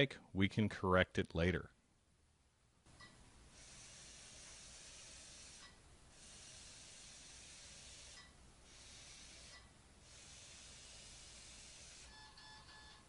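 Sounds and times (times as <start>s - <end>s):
small robot motors whirring: 3.6s - 12.1s.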